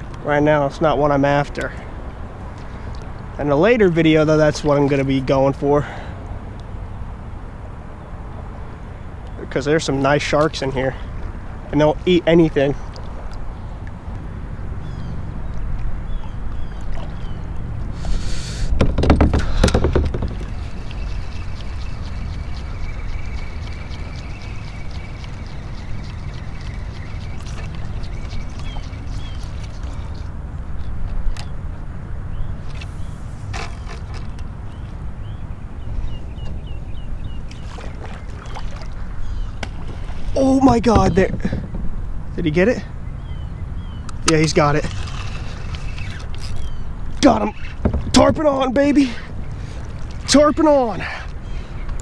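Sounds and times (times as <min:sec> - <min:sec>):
low wind rumble: 0:00.0 - 0:52.0
paddle blade splashing: 0:09.9 - 0:31.4, 0:35.8 - 0:42.9, 0:44.2 - 0:51.7
knocks and clatter on kayak: 0:18.7 - 0:22.2, 0:39.6 - 0:42.6, 0:47.6 - 0:48.8.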